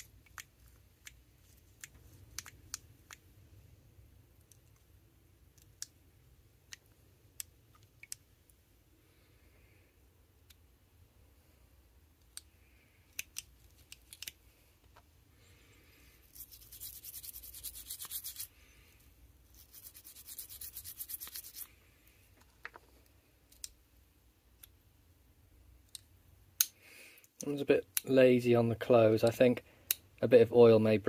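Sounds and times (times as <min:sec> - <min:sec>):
toothbrush scrubbing knife: 0:16.3 - 0:18.5, 0:19.5 - 0:21.7.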